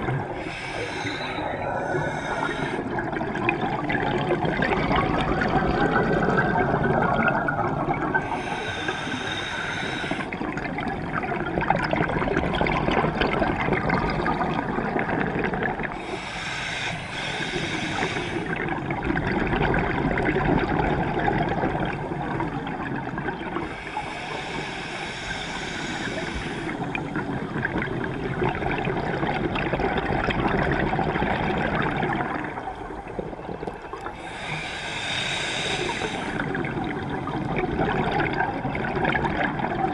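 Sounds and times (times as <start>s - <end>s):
exhaust bubbles underwater: 0.0s - 8.6s, 10.2s - 16.1s, 18.0s - 23.8s, 25.9s - 34.4s, 35.8s - 39.9s
regulator breathing hiss: 0.4s - 2.9s, 8.2s - 10.4s, 16.0s - 18.5s, 23.6s - 27.1s, 34.2s - 36.5s.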